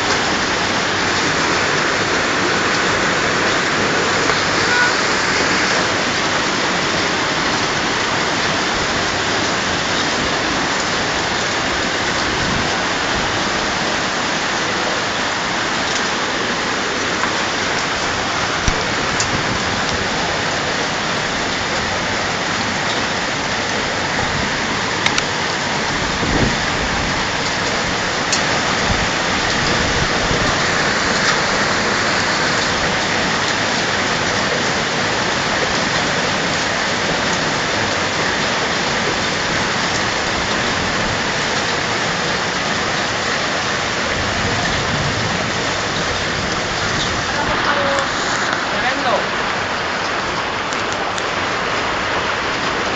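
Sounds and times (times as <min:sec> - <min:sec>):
hail and rain pelting down: 0:00.0 - 0:52.9
hailstones clicking: 0:22.6 - 0:49.3.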